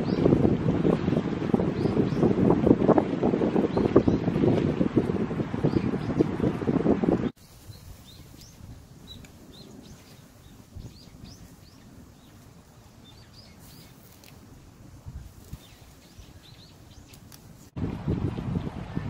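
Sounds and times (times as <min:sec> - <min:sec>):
small birds chirping: 0:07.4 - 0:17.7.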